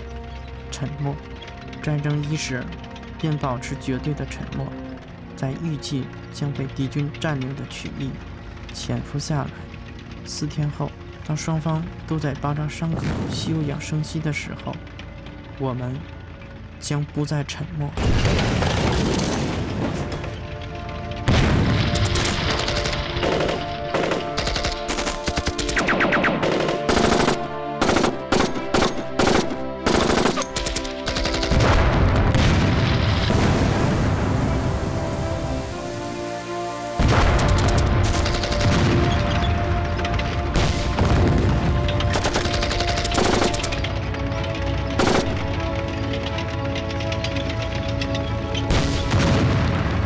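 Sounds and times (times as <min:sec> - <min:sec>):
orchestral music: 0:00.0 - 0:50.0
explosions rumbling: 0:12.9 - 0:13.9, 0:18.0 - 0:24.4, 0:31.4 - 0:35.8, 0:37.0 - 0:43.8, 0:48.6 - 0:50.0
automatic gunfire: 0:21.8 - 0:31.8, 0:37.2 - 0:39.2, 0:42.1 - 0:43.8.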